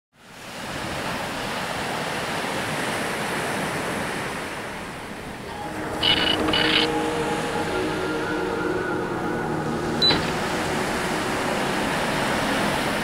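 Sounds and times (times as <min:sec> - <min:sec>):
waves breaking on beach: 0:00.2 - 0:13.0
musical tones: 0:05.4 - 0:13.0.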